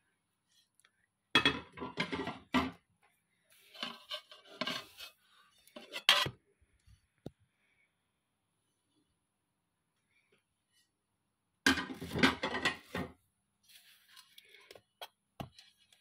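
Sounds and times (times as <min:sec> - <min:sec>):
plates scraping: 0:01.4 - 0:02.8, 0:03.5 - 0:06.4, 0:11.7 - 0:14.8.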